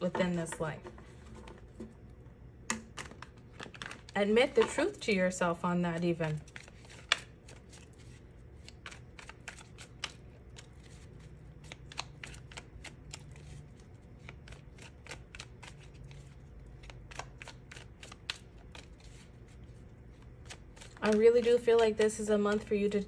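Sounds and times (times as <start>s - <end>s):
cards being shuffled: 6.2s - 22.8s.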